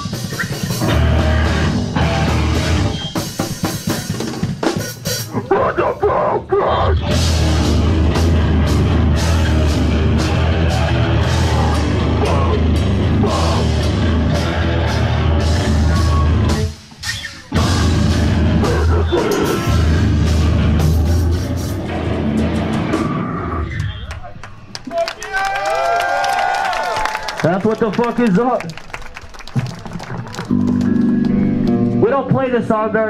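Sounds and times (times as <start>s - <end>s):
heavy metal band playing: 0.0s - 23.9s.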